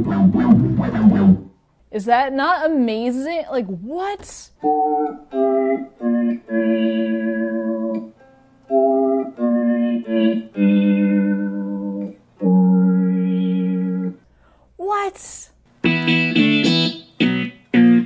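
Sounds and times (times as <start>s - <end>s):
electric guitar synth tone: 0.0s - 1.5s, 4.6s - 14.2s, 15.8s - 18.0s.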